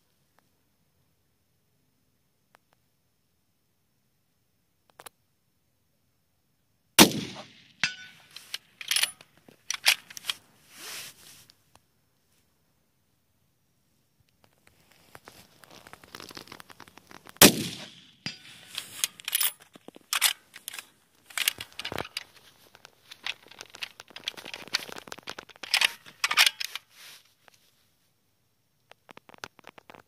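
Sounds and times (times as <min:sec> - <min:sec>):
rifle shot: 0:07.0 - 0:08.1, 0:17.4 - 0:19.0
rifle bolt clicking and rattling: 0:07.1 - 0:10.4, 0:17.4 - 0:26.9.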